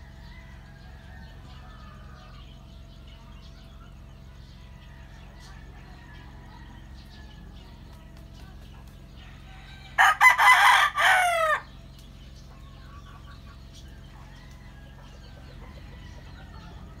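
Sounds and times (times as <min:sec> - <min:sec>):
rooster crowing: 0:00.0 - 0:02.5, 0:04.4 - 0:07.8, 0:09.2 - 0:11.8.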